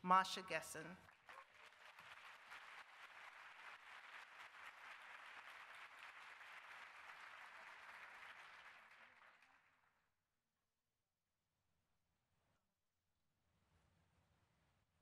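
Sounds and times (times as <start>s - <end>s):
audience applauding: 1.0s - 9.9s.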